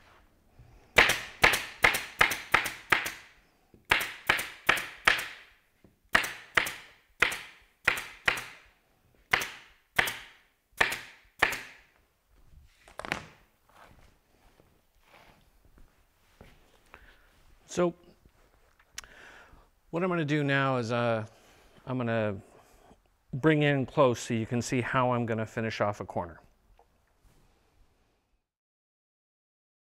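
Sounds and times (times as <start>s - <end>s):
staple gun firing: 9.3s - 11.8s.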